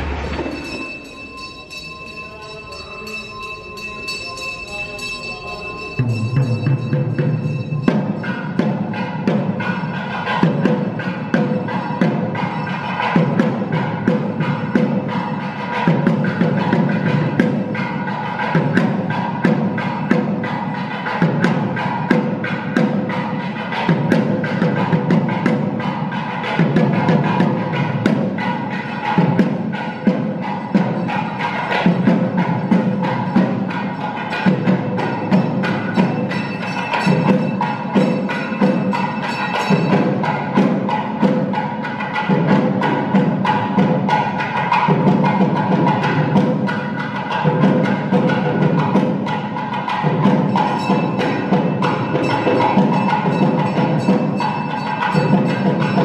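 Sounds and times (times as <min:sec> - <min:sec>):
background music with percussive beat: 0:00.0 - 0:56.0.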